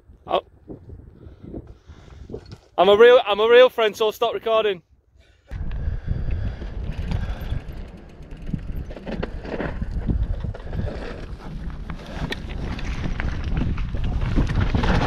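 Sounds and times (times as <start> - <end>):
wind rumble on microphone: 0.0 - 2.7, 5.5 - 15.0
bike rattling: 5.6 - 15.0.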